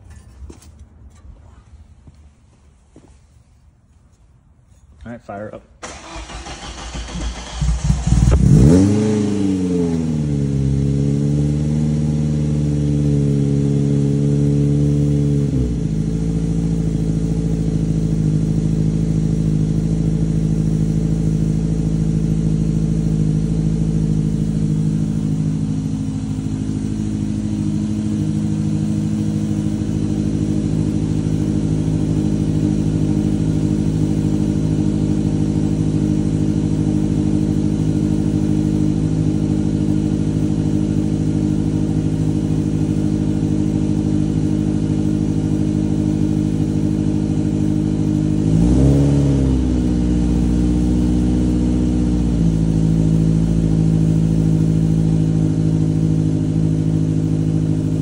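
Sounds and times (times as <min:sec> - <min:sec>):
car engine idling: 0:04.7 - 0:58.0.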